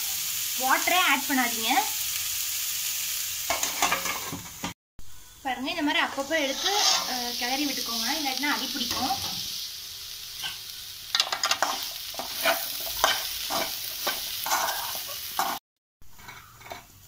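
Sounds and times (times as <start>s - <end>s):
food sizzling in oil: 0.0s - 17.0s
spoon scraping and knocking pan: 3.5s - 4.7s, 6.5s - 7.2s, 10.4s - 17.0s.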